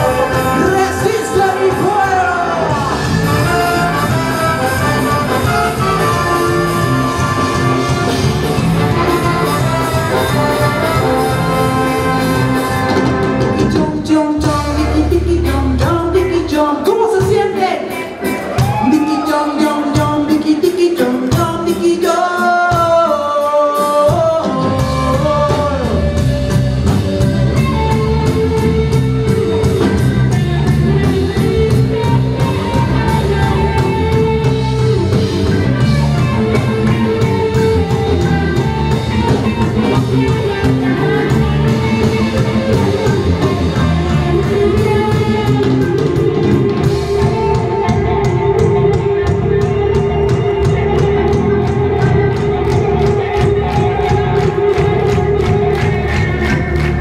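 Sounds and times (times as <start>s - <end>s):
person singing: 0.0s - 8.2s, 8.9s - 26.6s
bass guitar: 0.0s - 57.0s
drums: 0.0s - 57.0s
electric guitar: 0.0s - 57.0s.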